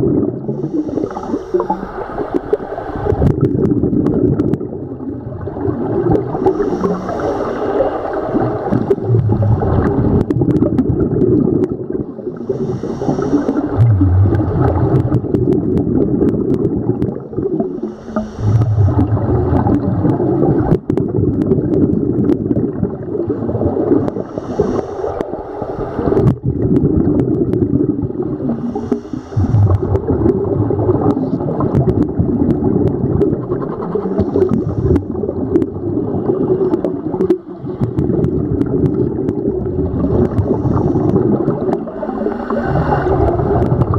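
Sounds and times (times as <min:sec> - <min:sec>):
exhaled bubbles gurgling: 0:00.0 - 0:43.9
underwater rumble: 0:00.0 - 0:43.9
scuba regulator hiss: 0:00.6 - 0:01.9, 0:06.4 - 0:08.0, 0:12.4 - 0:13.8, 0:17.8 - 0:18.7, 0:24.2 - 0:25.2.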